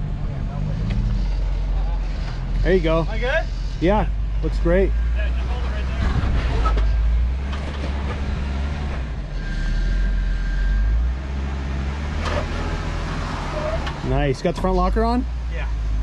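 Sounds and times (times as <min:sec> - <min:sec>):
engine low rumble: 0:00.0 - 0:16.0
knocks or scrapes: 0:06.0 - 0:10.0.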